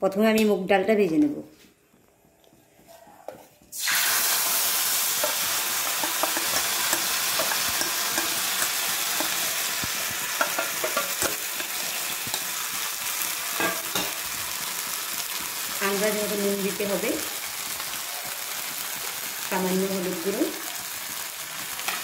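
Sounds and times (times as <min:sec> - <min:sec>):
paste sizzling in hot oil: 0:03.7 - 0:22.0
spoon clicking and scraping: 0:05.2 - 0:09.5, 0:10.4 - 0:12.6.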